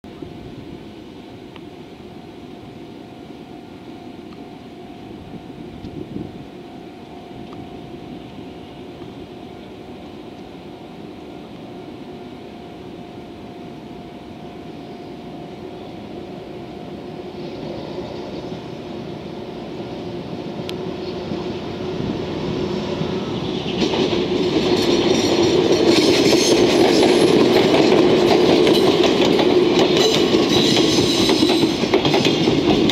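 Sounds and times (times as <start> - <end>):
diesel locomotive engine: 0.0 - 32.9
train wheels clattering over rail joints: 23.5 - 32.9.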